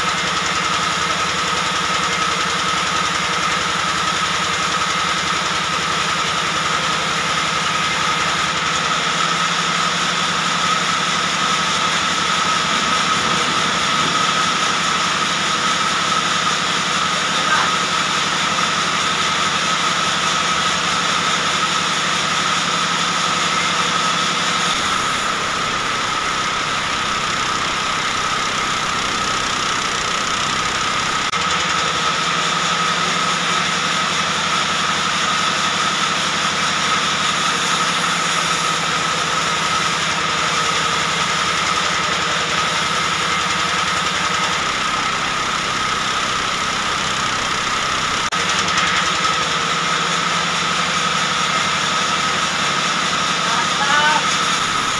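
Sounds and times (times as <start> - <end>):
deeper rumble: 10.2 - 17.2.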